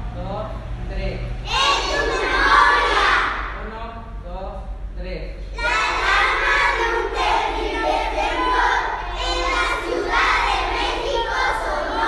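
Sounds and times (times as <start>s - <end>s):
children reciting in unison: 1.5s - 3.6s, 5.5s - 12.0s.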